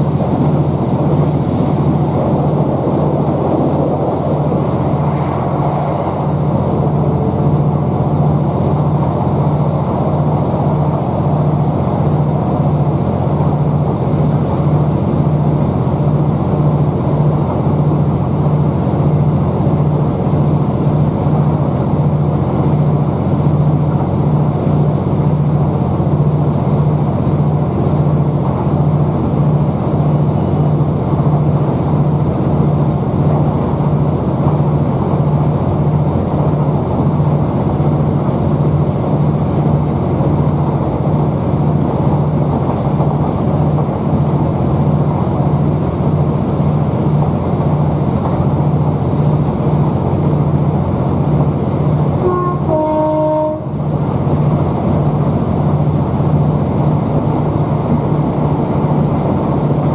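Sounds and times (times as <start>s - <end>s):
diesel engine droning: 0.0s - 59.9s
train rumbling on rails: 0.0s - 59.9s
two-note train horn: 52.2s - 54.0s.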